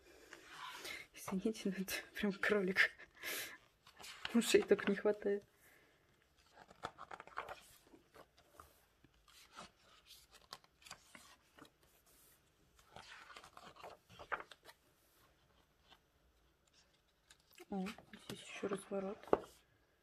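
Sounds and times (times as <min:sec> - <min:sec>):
pages turning: 0:03.7 - 0:05.3, 0:06.3 - 0:19.6.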